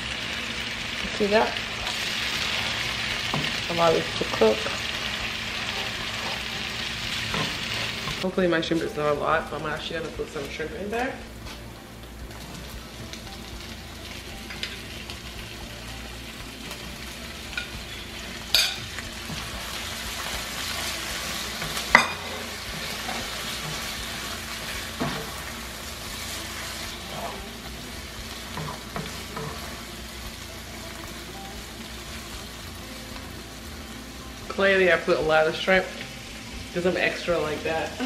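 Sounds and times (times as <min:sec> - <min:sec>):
shrimp sizzling in oil: 0:00.0 - 0:11.2, 0:12.0 - 0:38.0.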